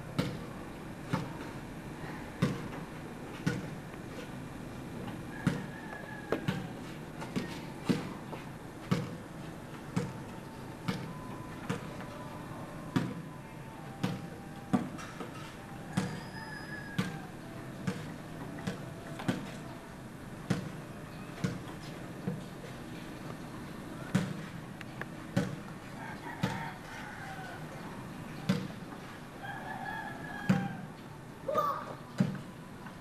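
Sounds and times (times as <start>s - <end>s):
basketball bouncing on concrete: 0.2s - 0.5s, 2.4s - 2.8s, 3.4s - 3.8s, 5.4s - 5.7s, 6.3s - 6.7s, 8.8s - 9.2s, 10.0s - 10.2s, 16.0s - 16.3s, 20.5s - 20.8s, 21.4s - 22.4s, 24.1s - 24.5s, 25.4s - 25.6s.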